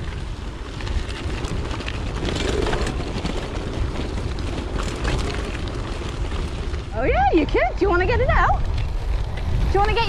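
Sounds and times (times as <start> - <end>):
light ticks and rattles: 0.0 - 6.9
bicycle rolling noise: 0.0 - 10.0
wind buffeting microphone: 0.0 - 10.0.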